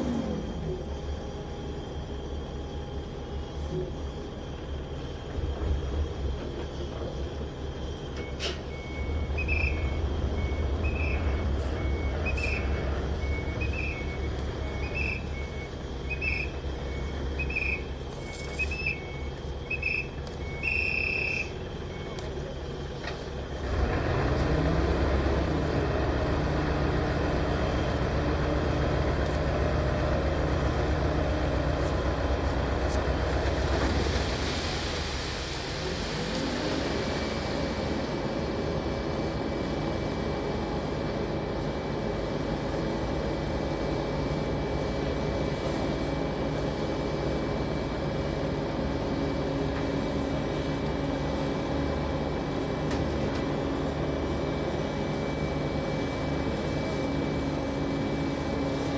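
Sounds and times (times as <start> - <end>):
diesel engine running: 0.0 - 58.9
reversing alarm beeping: 8.0 - 22.5.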